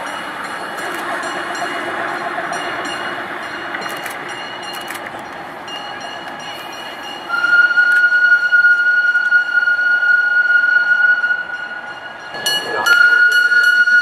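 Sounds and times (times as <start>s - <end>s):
train running noise: 0.0s - 14.0s
locomotive whistle blast: 7.3s - 14.0s.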